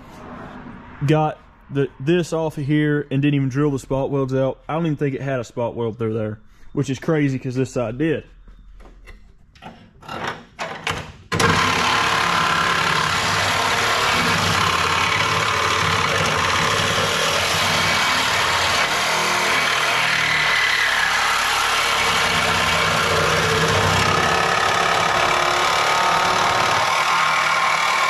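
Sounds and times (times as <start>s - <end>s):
machine motor running: 11.4s - 28.0s.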